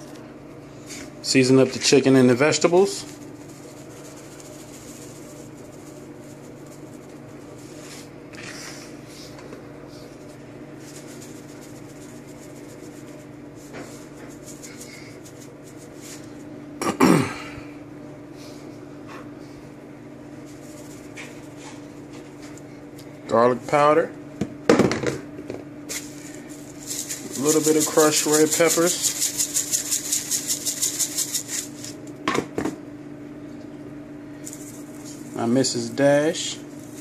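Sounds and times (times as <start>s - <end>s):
steady low hum: 0.0s - 37.0s
seasoning shakers rattling: 1.7s - 8.1s, 10.8s - 16.4s, 20.4s - 22.6s, 25.9s - 32.0s, 34.4s - 37.0s
person coughing: 16.8s - 17.7s.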